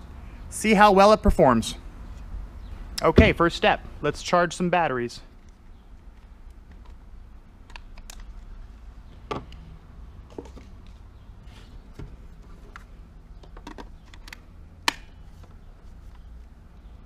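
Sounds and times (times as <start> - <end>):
plastic clicks and rattles: 12.7 - 15.0.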